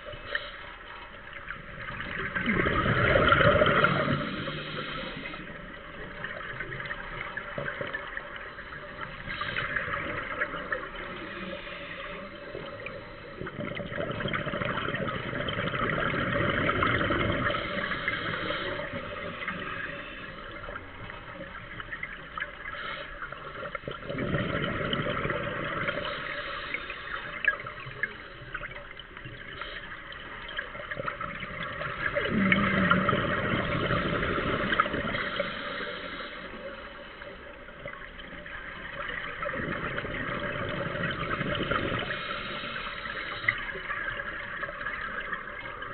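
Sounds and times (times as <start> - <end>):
bubbles burbling underwater: 0.0 - 45.9
steady watery rush: 0.0 - 45.9
diver breathing through regulator: 3.5 - 5.6, 17.4 - 20.7, 32.4 - 37.4, 42.0 - 43.7.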